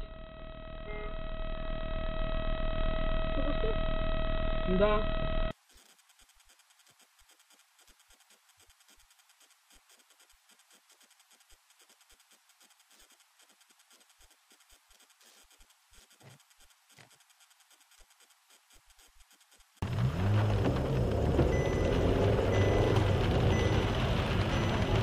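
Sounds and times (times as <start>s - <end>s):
faint crackling clicks: 5.5s - 25.0s.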